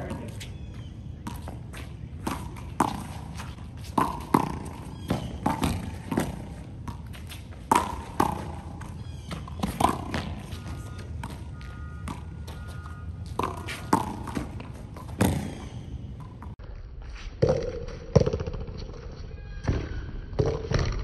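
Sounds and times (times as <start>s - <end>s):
ball bouncing on court: 0.0s - 16.6s, 17.4s - 18.7s
rubber ball hitting concrete wall: 4.0s - 7.0s.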